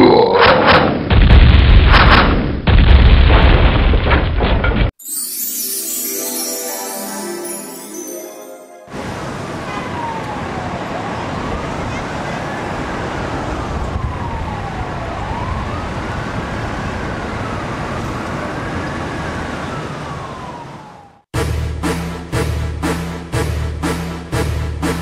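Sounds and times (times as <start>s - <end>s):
siren wailing: 8.9s - 12.8s, 13.4s - 21.2s.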